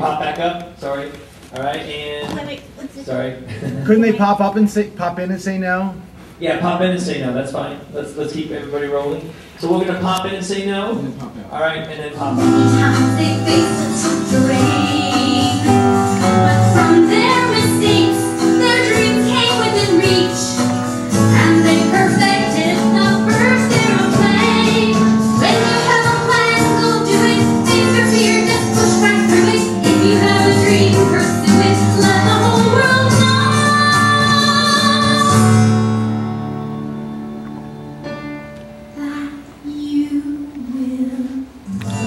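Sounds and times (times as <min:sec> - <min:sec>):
song with singing voice: 0:12.2 - 0:37.5, 0:38.9 - 0:42.0.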